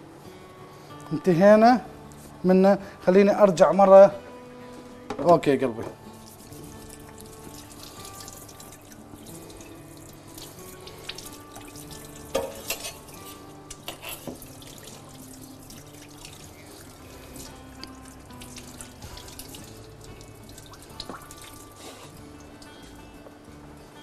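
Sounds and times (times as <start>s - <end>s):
tap water running into sink: 14.2s - 21.7s.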